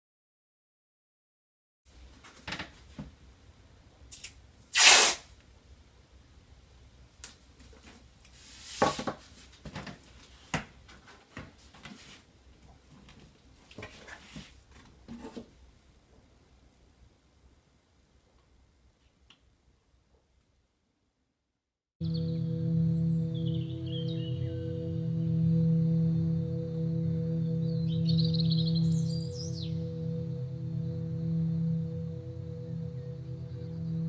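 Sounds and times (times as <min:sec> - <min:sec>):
masking tape ripping off roll: 0:04.1 - 0:05.3.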